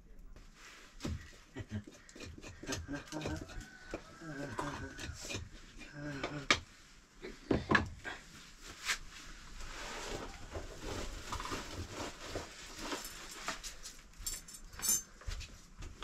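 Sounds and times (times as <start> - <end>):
plastic bag rustling: 8.5 - 14.2.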